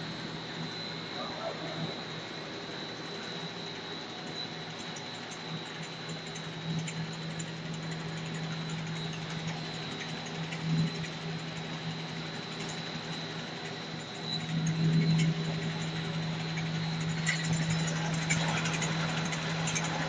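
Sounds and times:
high-pitched whine: 0.0 - 20.0
machinery motor hum: 0.0 - 20.0.

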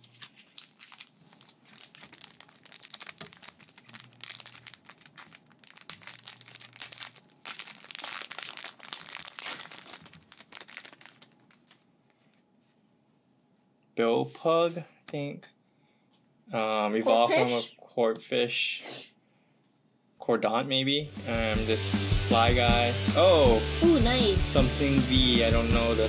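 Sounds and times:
foil pack crinkling and tearing: 0.0 - 12.3.

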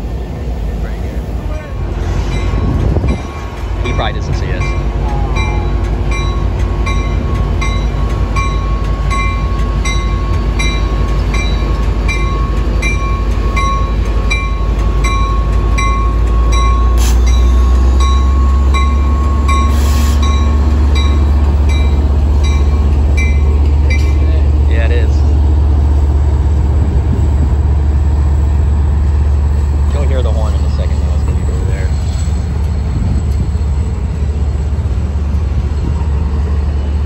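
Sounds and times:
diesel locomotive rumbling: 0.0 - 37.0
train bell ringing: 2.2 - 24.4.

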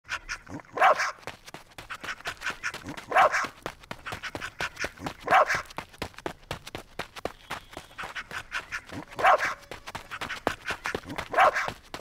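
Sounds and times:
dog barking: 0.1 - 1.2, 2.0 - 5.7, 8.2 - 11.8.

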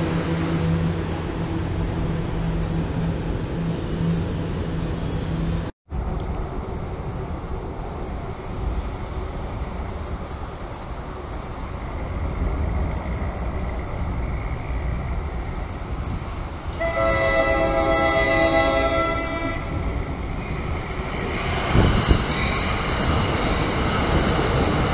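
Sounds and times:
locomotive humming: 0.0 - 24.9
train rumbling on wet tracks: 3.9 - 24.9
train air horn: 16.8 - 19.8.

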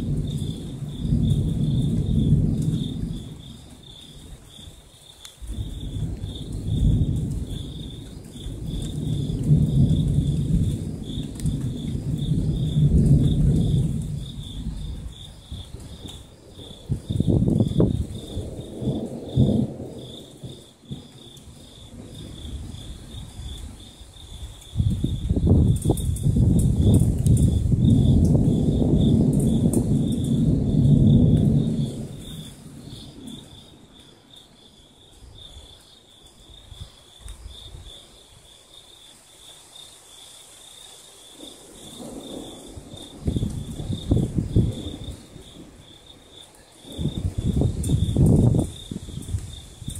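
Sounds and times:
thunder rumbling: 0.0 - 34.0, 41.3 - 49.9
crickets chirping: 0.0 - 49.9.

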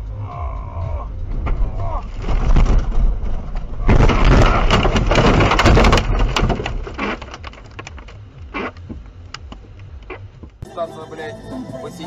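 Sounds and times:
car crash crunching: 1.2 - 9.1
clicks and knocks: 1.3 - 9.7.

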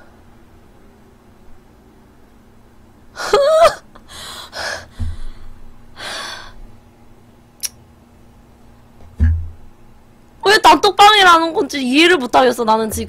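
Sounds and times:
woman gasping: 4.0 - 6.6.

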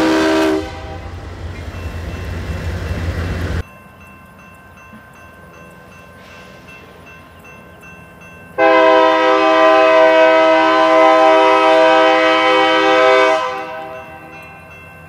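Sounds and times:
locomotive air horn blast: 0.0 - 1.2, 8.6 - 14.0
crossing warning bell ringing: 0.0 - 15.0.

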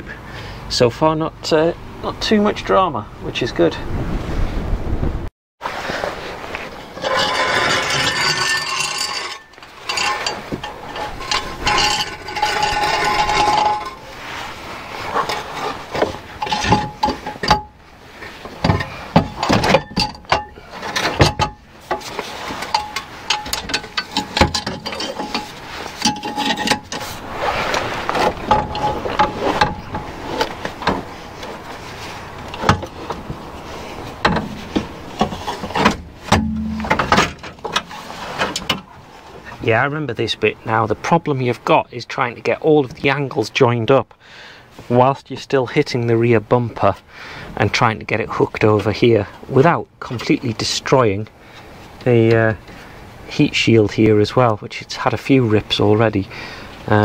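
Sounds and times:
exhaust pipe clanking on metal: 6.9 - 14.1, 15.3 - 17.8, 18.5 - 27.2, 28.2 - 31.2, 34.2 - 39.0.

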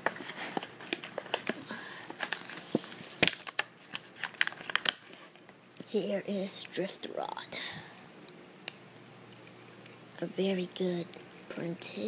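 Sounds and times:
plastic packaging crinkling: 0.0 - 5.6.

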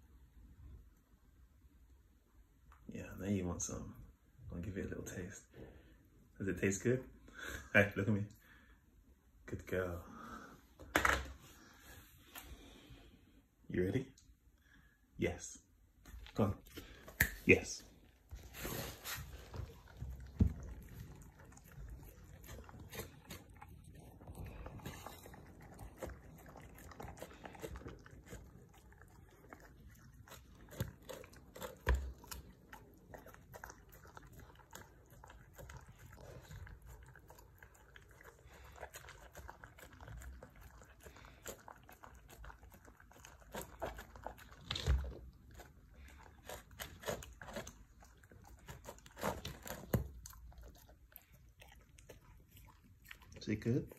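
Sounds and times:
dog licking and chewing: 16.0 - 53.9.

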